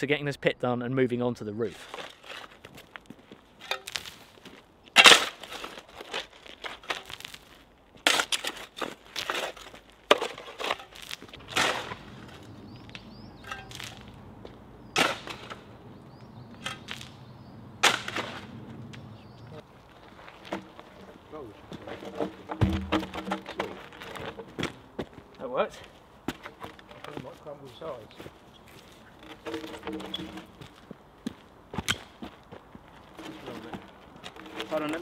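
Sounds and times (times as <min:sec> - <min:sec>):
shovels scraping into earth: 0:01.7 - 0:02.9, 0:03.6 - 0:12.5, 0:14.9 - 0:15.7, 0:17.8 - 0:18.6, 0:26.4 - 0:30.8, 0:33.1 - 0:35.0.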